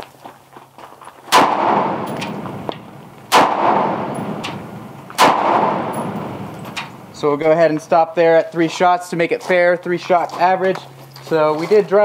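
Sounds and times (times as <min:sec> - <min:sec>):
rifle shots: 0:01.3 - 0:07.1
rolling echo: 0:01.3 - 0:07.9.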